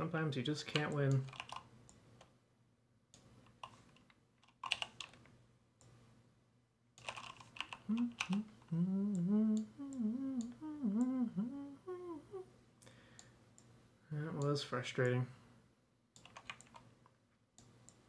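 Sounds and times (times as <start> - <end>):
computer keyboard clicking: 0.7 - 1.7, 3.2 - 5.3, 7.0 - 8.4, 16.2 - 16.9
person humming a tune: 7.8 - 12.5.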